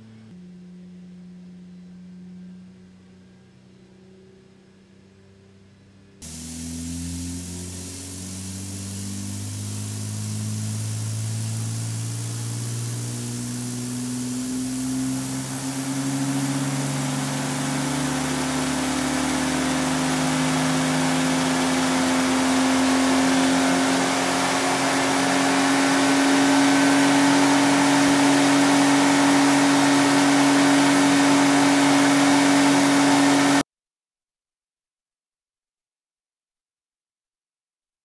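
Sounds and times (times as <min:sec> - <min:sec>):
engine drone with turbo hiss: 0:00.0 - 0:33.6.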